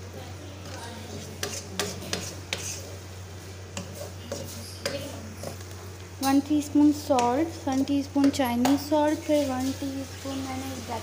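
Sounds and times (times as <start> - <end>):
spatula scraping vegetables in pan: 0.7 - 10.3
spatula knocking against pan: 7.1 - 8.9.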